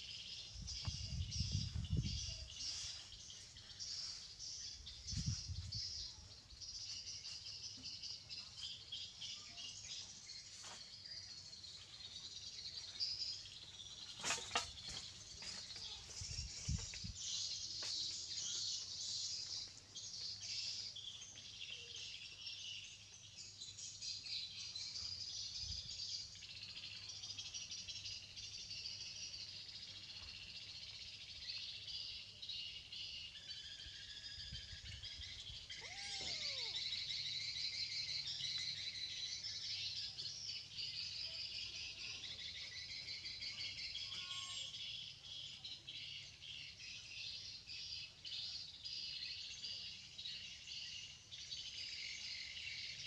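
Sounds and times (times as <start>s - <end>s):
birds chirping: 0.0s - 53.0s
insects chirring: 35.8s - 37.1s.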